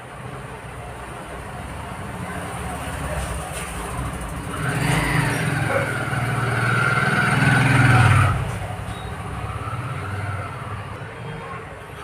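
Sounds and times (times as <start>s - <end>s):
vehicle engine passing by: 2.6s - 11.0s.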